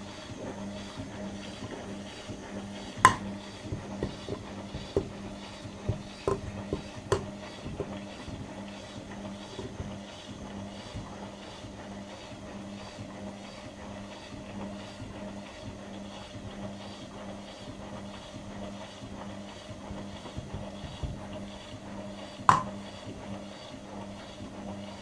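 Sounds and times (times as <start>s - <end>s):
washing machine drum turning: 1.2s - 10.1s, 22.4s - 23.0s.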